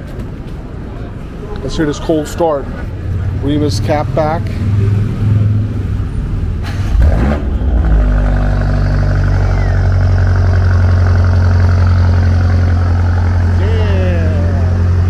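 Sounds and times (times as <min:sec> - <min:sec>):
car engine cold start and idle: 0:05.8 - 0:15.0.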